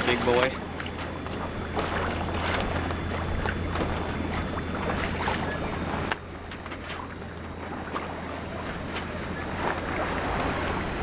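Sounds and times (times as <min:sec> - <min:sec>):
water slapping against hull: 0:00.0 - 0:11.0
wind rumble on microphone: 0:00.0 - 0:11.0.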